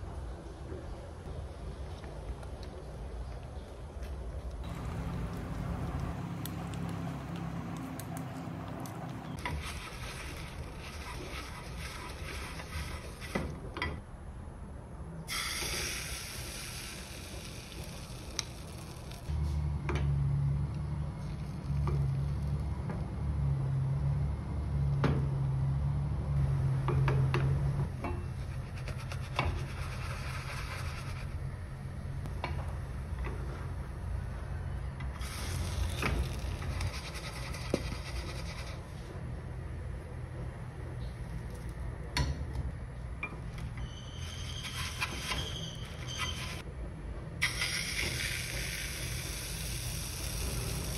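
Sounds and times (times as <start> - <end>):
low hum: 4.6 - 9.5
paper towel rubbing a pan: 9.6 - 13.3.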